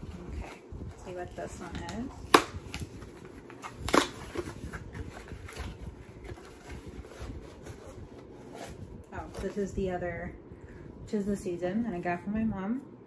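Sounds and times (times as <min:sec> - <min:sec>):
packaging rustling and clicking: 0:00.0 - 0:09.6.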